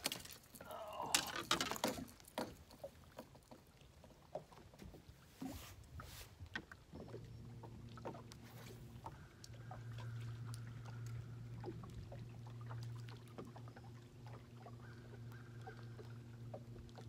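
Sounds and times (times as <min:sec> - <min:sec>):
fishing tackle clicking and knocking: 0:00.0 - 0:03.3
low electric motor hum: 0:06.8 - 0:17.0.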